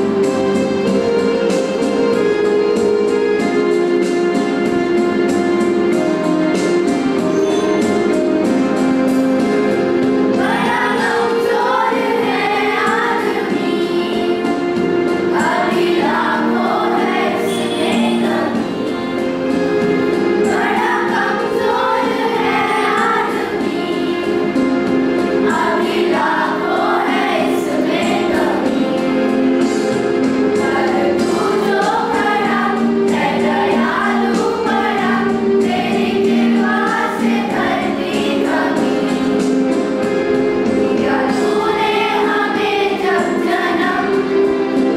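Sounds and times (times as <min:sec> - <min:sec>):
instrumental accompaniment of held chords: 0:00.0 - 0:44.9
girls singing in unison: 0:10.3 - 0:44.9.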